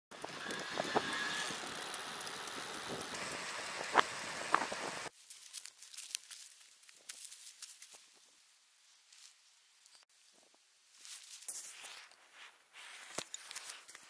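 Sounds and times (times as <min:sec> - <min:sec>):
bicycle wind and road noise: 0:00.1 - 0:05.1.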